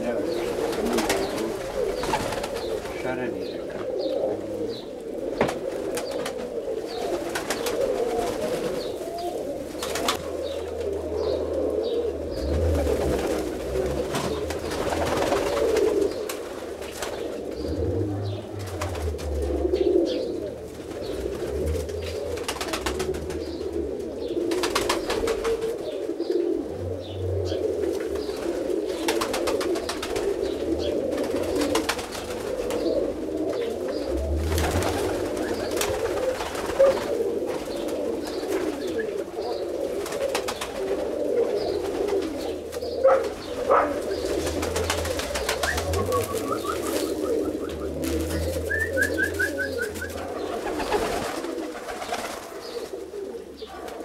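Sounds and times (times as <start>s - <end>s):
pigeons cooing: 0.0s - 54.0s.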